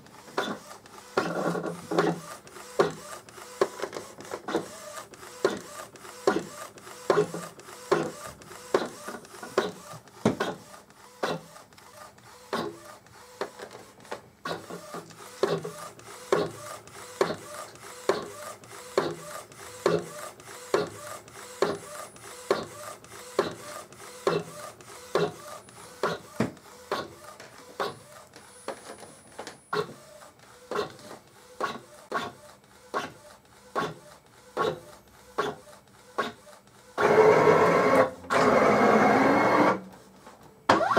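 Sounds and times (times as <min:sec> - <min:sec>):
printer carriage whirring: 0:00.0 - 0:40.9.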